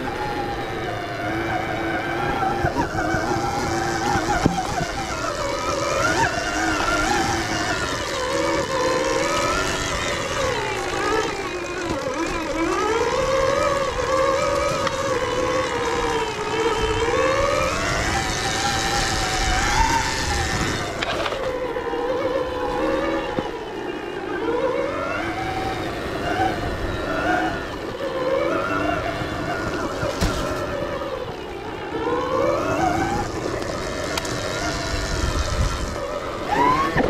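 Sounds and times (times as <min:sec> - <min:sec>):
electric motor whining: 0:00.0 - 0:37.0
tyres and wind rumble: 0:00.0 - 0:37.0
bike knocking over bumps: 0:30.0 - 0:30.7.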